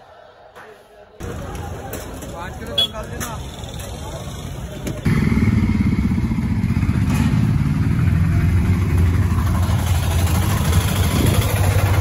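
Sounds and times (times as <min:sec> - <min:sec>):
motor scooter engine droning: 0:03.6 - 0:12.0.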